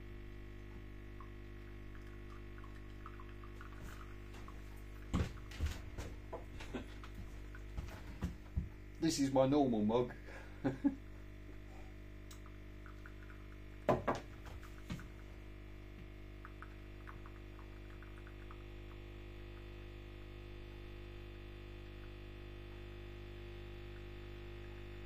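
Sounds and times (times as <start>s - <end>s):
coffee machine humming: 0.0s - 25.0s
mug knocking on wooden table: 13.9s - 14.3s.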